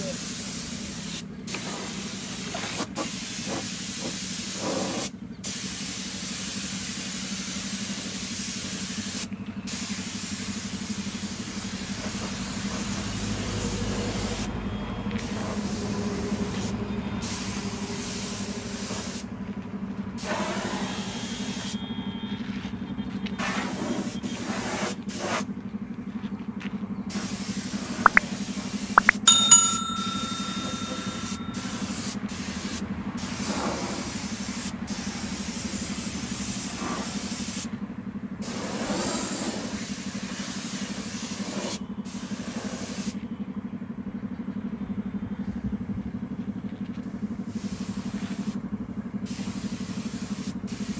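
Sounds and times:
paint spray gun hissing: 0.2 - 11.9
sharp metallic clinks: 29.0 - 32.1.

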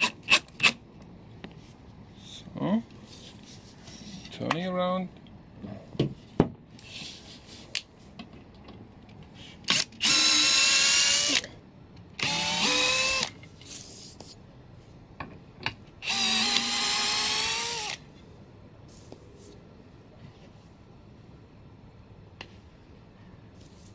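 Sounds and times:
drill motor whining: 9.7 - 11.4, 12.2 - 13.3, 16.0 - 18.0.

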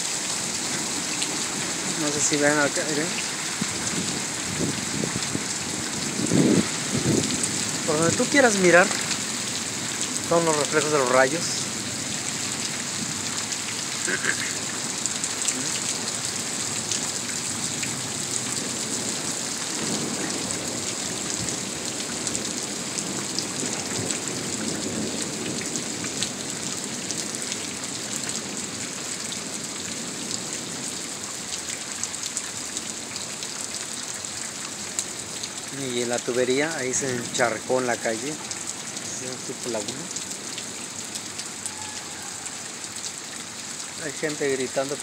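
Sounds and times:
steady rain falling: 0.0 - 45.0.

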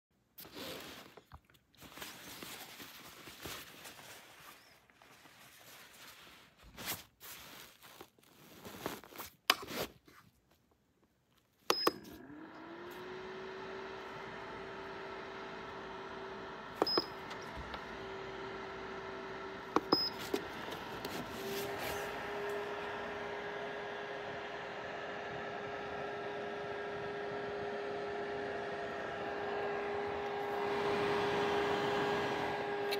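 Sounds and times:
dryer fan motor humming: 12.0 - 32.9.

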